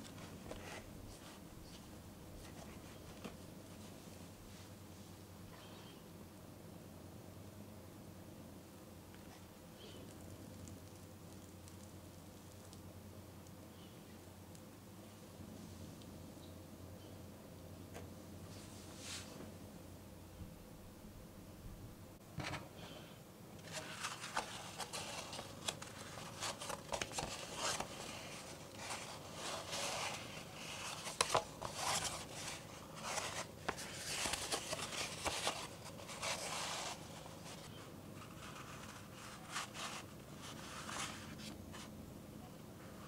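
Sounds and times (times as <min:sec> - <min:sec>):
stiff paper rustling and scraping: 0:23.6 - 0:41.9.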